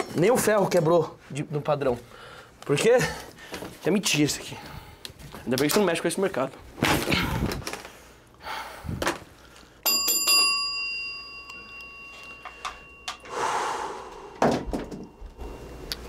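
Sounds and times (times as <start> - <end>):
small bell ringing: 9.8 - 13.4, 14.7 - 15.4
thump: 14.4 - 15.0.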